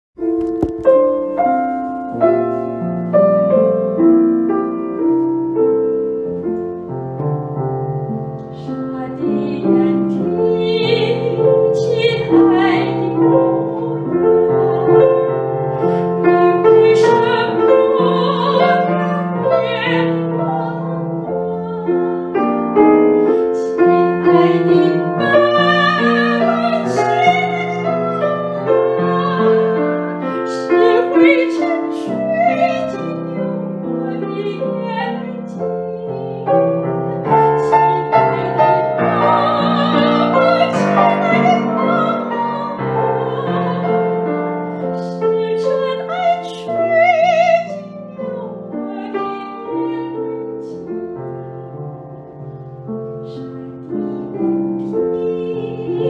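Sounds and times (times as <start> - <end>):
grand piano playing: 0.2 - 56.0
woman singing with vibrato: 8.6 - 15.3, 16.2 - 50.9, 53.3 - 56.0.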